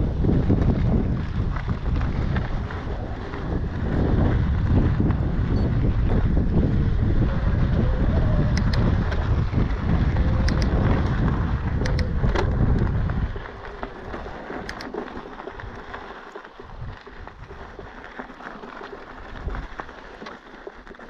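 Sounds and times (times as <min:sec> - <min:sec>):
tyres crunching on gravel: 0:00.0 - 0:07.6, 0:08.7 - 0:21.0
wind rushing over microphone: 0:00.0 - 0:16.0, 0:16.7 - 0:17.9, 0:19.2 - 0:19.8
sharp clicks: 0:08.5 - 0:09.2, 0:10.4 - 0:11.2, 0:11.8 - 0:12.9.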